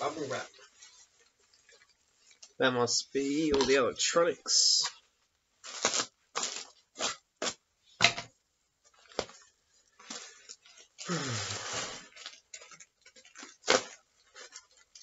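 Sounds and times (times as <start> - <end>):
packing paper rustle: 0.0 - 5.0, 8.9 - 15.0
bubble wrap crinkling: 0.0 - 8.0, 8.8 - 15.0.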